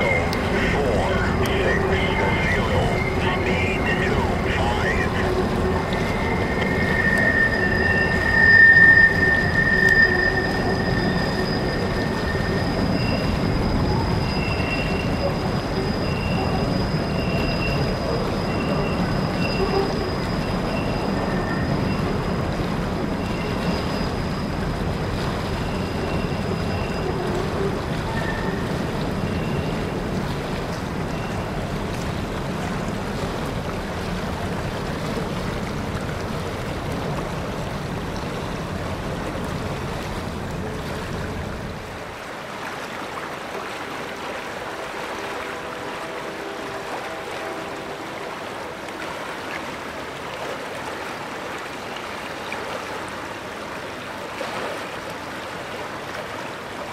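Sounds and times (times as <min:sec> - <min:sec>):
freight cars rumbling over bridge: 0:00.0 - 0:42.6
flowing creek water: 0:00.0 - 0:56.9.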